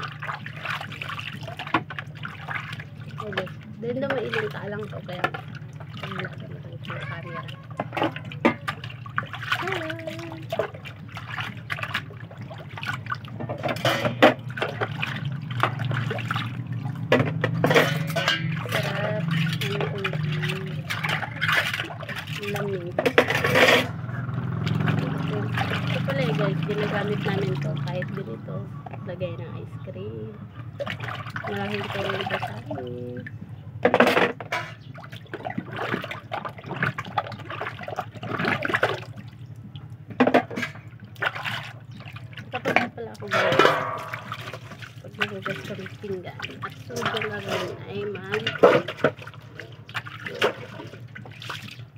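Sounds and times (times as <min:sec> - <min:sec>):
water splashing in a basin: 0:00.0 - 0:51.9
dishes knocking: 0:13.4 - 0:14.9, 0:17.1 - 0:20.3, 0:43.3 - 0:44.6.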